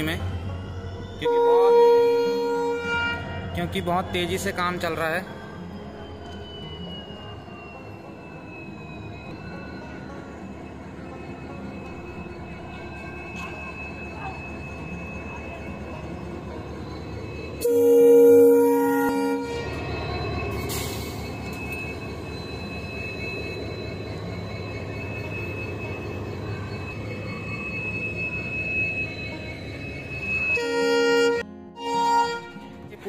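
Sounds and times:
diesel locomotive rumbling past: 0.0 - 33.0
locomotive horn blast: 1.2 - 3.4, 17.6 - 19.9, 30.6 - 33.0.

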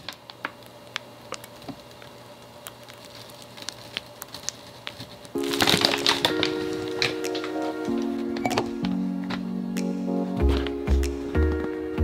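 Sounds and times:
piping bag wet clicks and crinkles: 0.0 - 7.4
music: 5.4 - 12.0.

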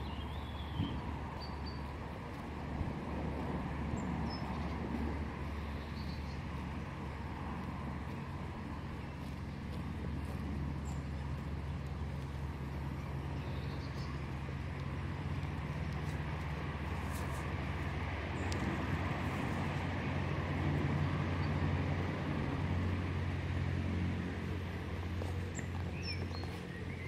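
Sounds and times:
low outdoor rumble: 0.0 - 27.0
faint ticks: 13.6 - 16.6.

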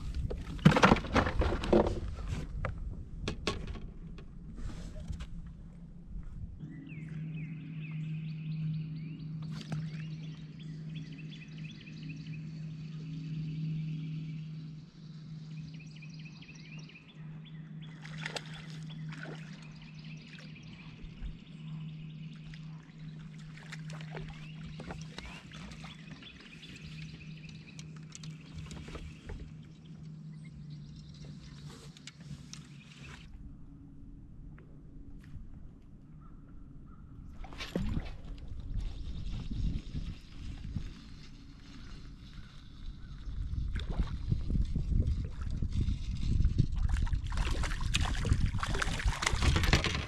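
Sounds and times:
clicks and knocks on boat: 0.1 - 4.4, 48.6 - 50.0.

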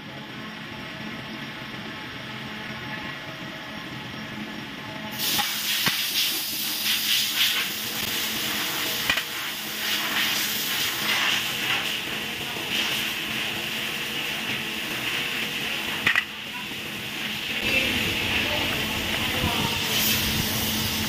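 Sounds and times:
loud steady hiss: 5.0 - 21.0.

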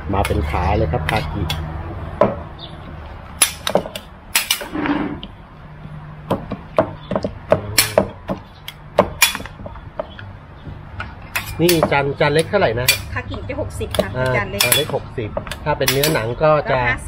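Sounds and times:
cleaver chopping meat: 6.3 - 10.2.

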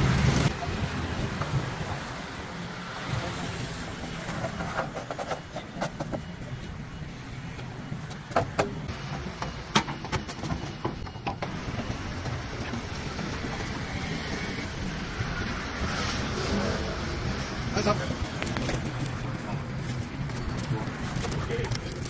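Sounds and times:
outdoor background noise: 0.0 - 22.0.

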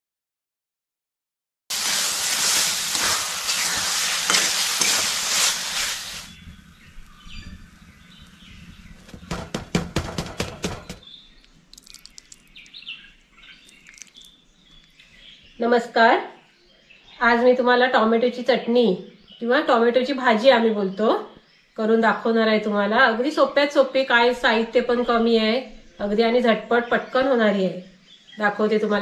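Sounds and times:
food sizzling in a hot pan: 1.7 - 7.3, 11.8 - 12.8, 13.6 - 14.3
faint bird chirps: 6.2 - 9.3, 10.9 - 22.4.

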